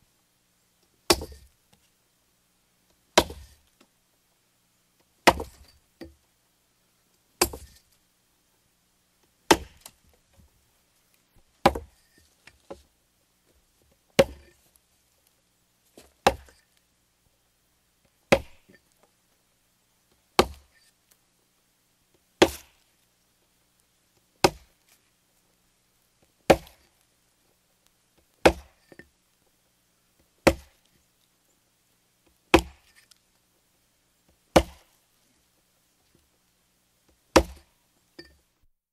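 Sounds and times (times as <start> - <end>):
axe chopping wood: 1.1 - 1.5, 3.2 - 3.5, 5.2 - 5.7, 7.4 - 7.8, 9.5 - 10.0, 11.6 - 12.0, 14.2 - 14.5, 16.2 - 16.6, 18.3 - 18.8, 20.4 - 20.7, 22.4 - 22.8, 24.4 - 24.7, 26.5 - 26.9, 28.4 - 28.9, 30.4 - 30.8, 32.5 - 32.9, 34.6 - 34.9, 37.4 - 37.7.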